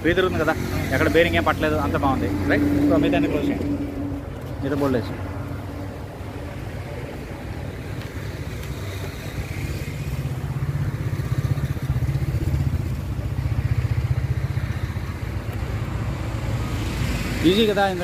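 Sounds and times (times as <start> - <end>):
engine running: 0.0 - 18.0.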